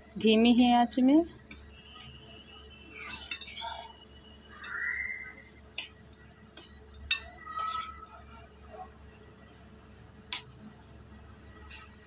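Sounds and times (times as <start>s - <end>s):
spoon scraping semolina in metal pan: 0.2s - 12.0s
spoon clicking against pan: 5.8s - 8.2s.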